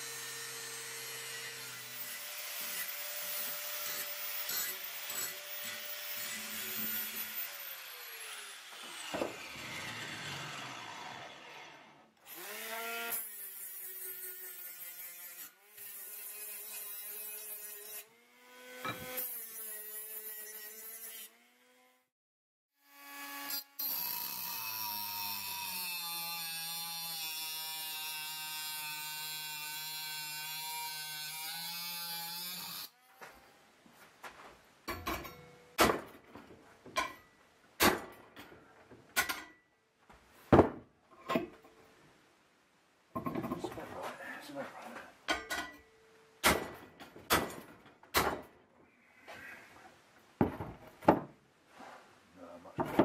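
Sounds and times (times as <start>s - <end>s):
angle grinder cutting steel: 0.0s - 22.0s, 22.8s - 33.3s.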